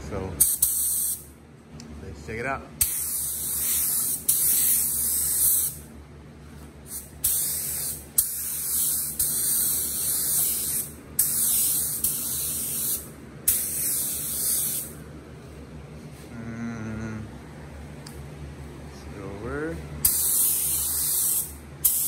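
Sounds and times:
steady low hum: 0:00.0 - 0:22.0
spray gun hissing: 0:00.4 - 0:01.2, 0:02.8 - 0:05.9, 0:06.9 - 0:15.0, 0:20.0 - 0:22.0.

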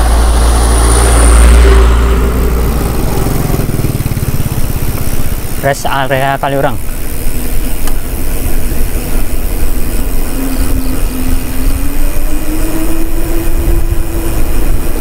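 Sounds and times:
faint hum: 0:00.0 - 0:15.0
bike tyres rolling on asphalt: 0:02.4 - 0:15.0
wind on microphone: 0:06.9 - 0:15.0.

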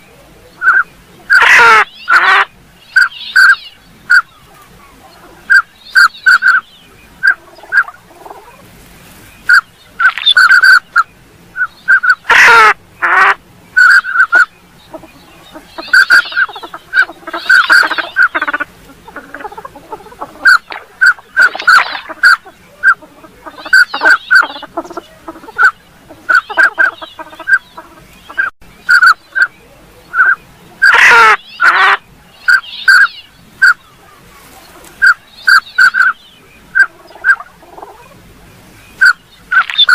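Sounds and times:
ducks whistling: 0:00.0 - 0:08.6, 0:09.4 - 0:38.2, 0:38.8 - 0:39.9
harsh duck calls dropping in pitch: 0:00.6 - 0:04.3, 0:09.5 - 0:29.5, 0:30.1 - 0:33.8, 0:39.0 - 0:39.9
raspy duck calls: 0:00.6 - 0:04.3, 0:05.2 - 0:08.6, 0:09.5 - 0:29.5, 0:30.1 - 0:33.9, 0:34.7 - 0:38.2, 0:39.0 - 0:39.9.

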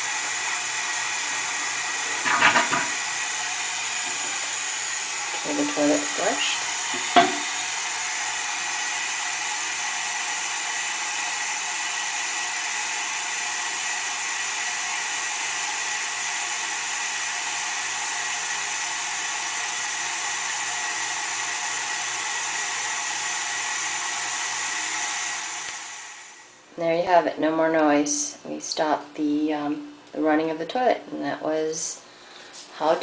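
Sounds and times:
toilet cistern refilling with hiss: 0:00.0 - 0:11.7.

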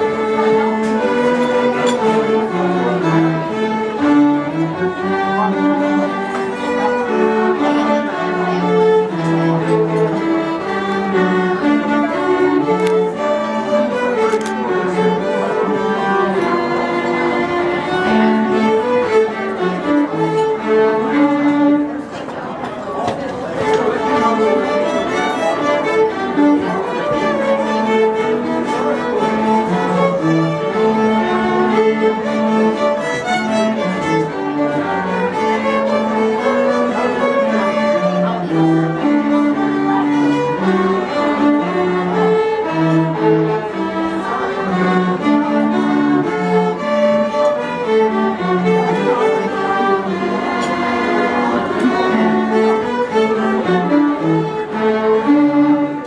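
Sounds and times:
string ensemble playing carol: 0:00.0 - 0:56.0.

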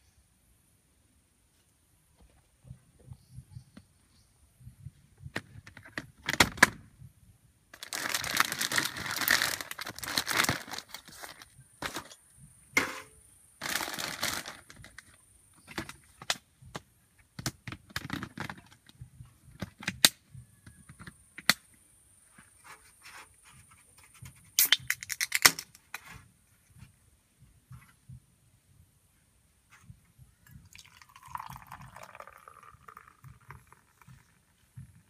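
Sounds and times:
plastic bag rustling: 0:07.8 - 0:12.2, 0:13.6 - 0:15.1.

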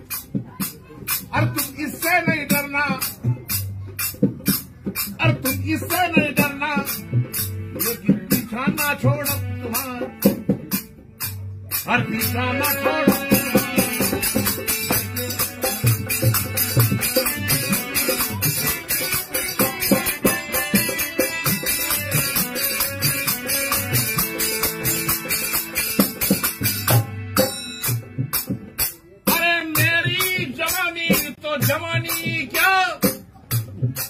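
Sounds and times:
dholak drum strokes: 0:00.0 - 0:34.0
harmonium: 0:03.5 - 0:34.0.

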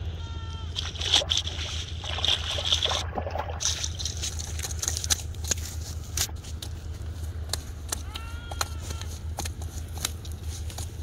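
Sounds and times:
steady low hum: 0:00.0 - 0:11.0
fish splashing in water: 0:00.7 - 0:05.3
clicks and scrapes on mud: 0:03.6 - 0:11.0.

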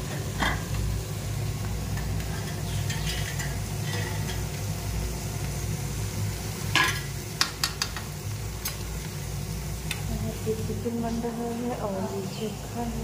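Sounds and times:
steady low hum: 0:00.0 - 0:13.0
metal spoon scraping pan: 0:02.3 - 0:04.4
spoon tapping pan: 0:06.8 - 0:08.1.

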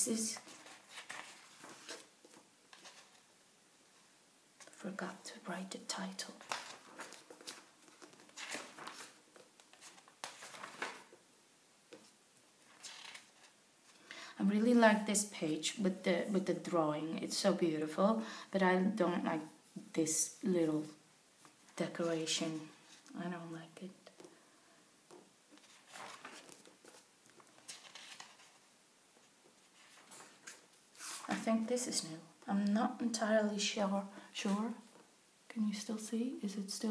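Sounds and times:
book pages turning: 0:00.3 - 0:03.3, 0:06.4 - 0:11.2, 0:11.9 - 0:13.6, 0:25.1 - 0:31.4.

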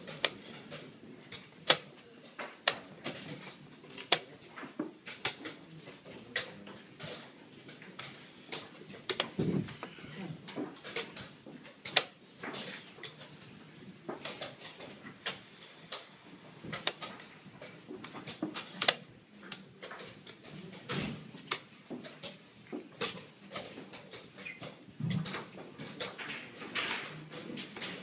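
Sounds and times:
chess pieces on wooden board: 0:00.0 - 0:28.0.

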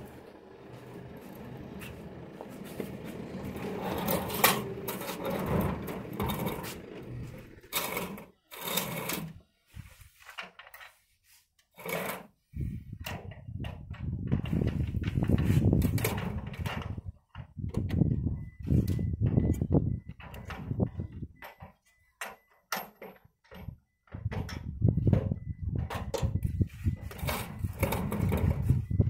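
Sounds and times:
panel scraping on concrete: 0:02.5 - 0:09.4.

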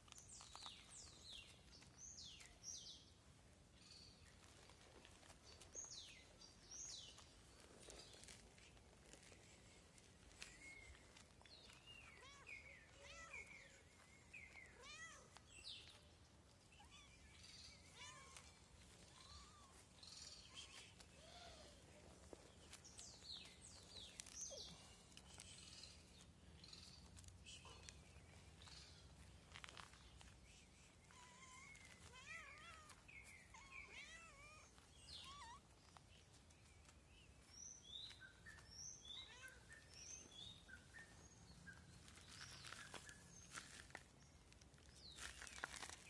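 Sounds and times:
small birds chirping: 0:00.0 - 0:46.0.

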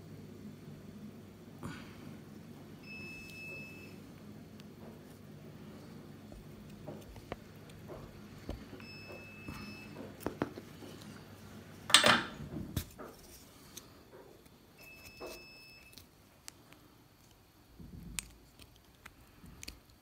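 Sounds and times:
faint high steady tone: 0:02.8 - 0:04.0, 0:08.8 - 0:10.0, 0:14.7 - 0:16.1.

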